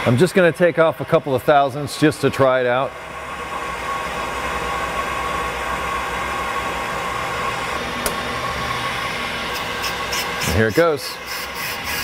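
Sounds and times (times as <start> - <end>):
brake lathe whirring: 2.9 - 12.0.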